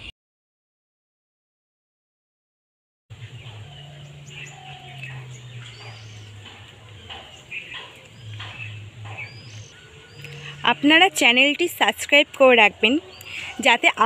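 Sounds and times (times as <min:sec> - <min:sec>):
birds chirping: 0:03.1 - 0:14.0
low steady hum: 0:03.1 - 0:14.0.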